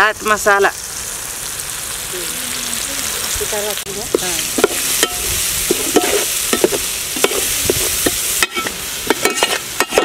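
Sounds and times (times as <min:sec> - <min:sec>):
vegetables sizzling in oil: 0:00.0 - 0:10.0
skimmer scraping metal pot: 0:04.2 - 0:10.0.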